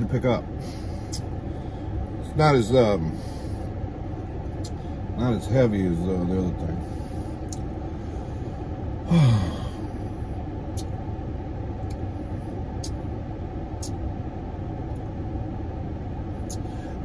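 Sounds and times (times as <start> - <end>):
mouth clicks while chewing: 7.5 - 7.7, 10.7 - 10.9, 12.8 - 13.0.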